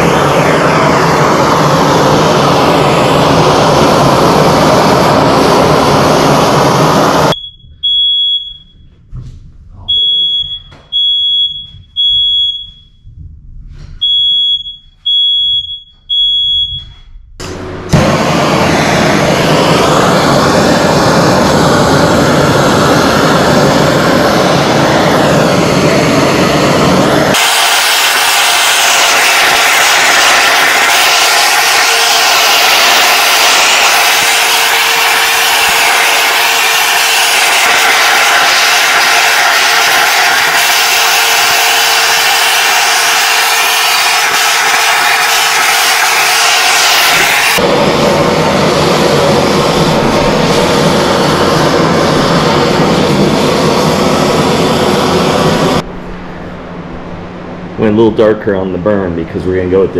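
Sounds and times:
gas torch hissing: 0:00.0 - 0:07.4, 0:17.8 - 0:55.8
smoke alarm beeps: 0:07.3 - 0:09.0, 0:09.9 - 0:13.1, 0:14.0 - 0:17.2.

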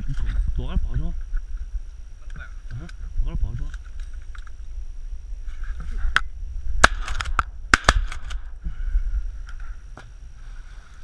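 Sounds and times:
shotgun shots: 0:06.8 - 0:08.5.

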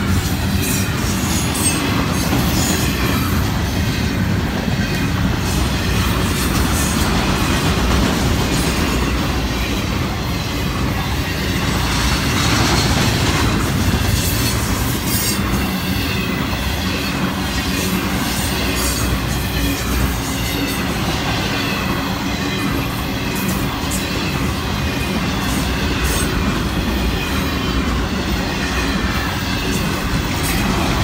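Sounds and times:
steel wheels rumbling on rail: 0:00.0 - 0:31.0.

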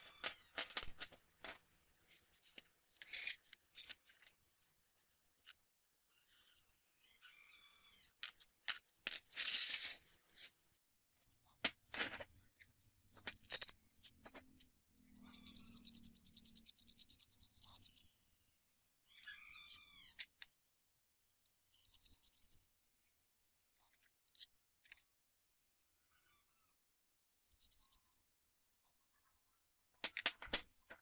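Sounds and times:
steel hardware clinking: 0:13.2 - 0:13.8.

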